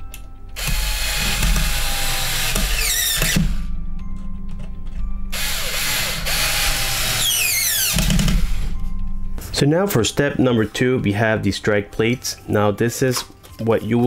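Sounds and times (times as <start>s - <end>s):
electric screwdriver driving screws: 0.6s - 3.6s, 5.3s - 8.7s
motor whine winding down: 5.4s - 8.3s.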